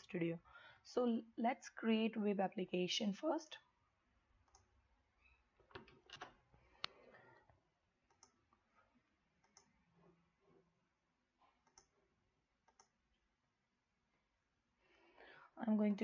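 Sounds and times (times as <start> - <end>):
computer mouse clicks: 4.4 - 4.7, 8.0 - 8.6, 9.4 - 9.8, 11.6 - 12.0, 12.6 - 13.0.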